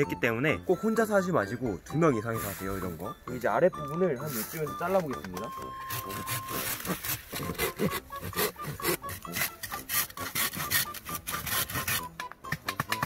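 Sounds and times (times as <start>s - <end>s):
hand saw cutting bamboo: 5.4s - 13.0s.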